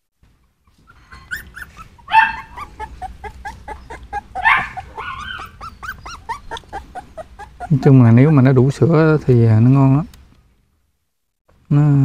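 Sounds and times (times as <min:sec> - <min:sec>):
puppies squeaking and whimpering: 0:00.4 - 0:08.3, 0:09.3 - 0:10.1.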